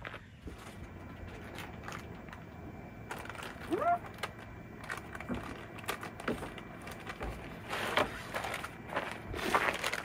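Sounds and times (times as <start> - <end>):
footsteps on gravel: 5.1 - 10.0.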